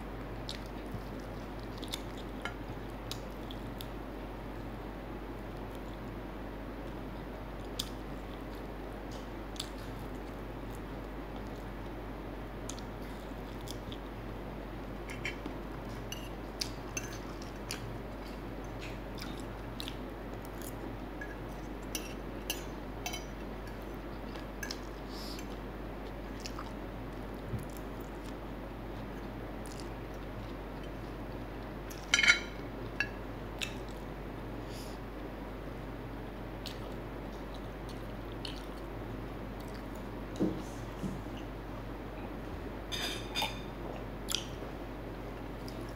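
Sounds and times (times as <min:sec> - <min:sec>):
chewing and biting food: 0:00.4 - 0:03.9, 0:12.6 - 0:14.2, 0:15.1 - 0:22.2, 0:26.3 - 0:31.2, 0:36.6 - 0:38.9.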